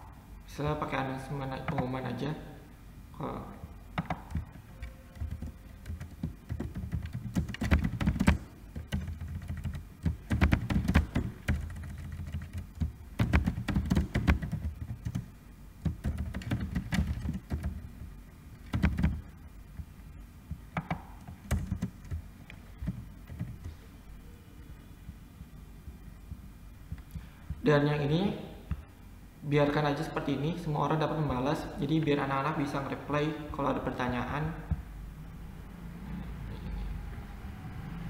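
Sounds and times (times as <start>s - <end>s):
keyboard typing clicks: 4.0s - 17.8s, 18.6s - 19.9s, 20.5s - 23.8s.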